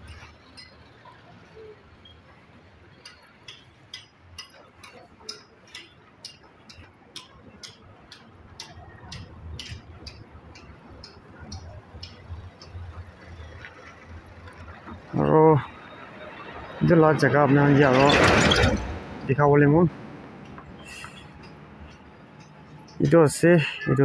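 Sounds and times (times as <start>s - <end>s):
footsteps on pavement: 20.4s - 23.2s.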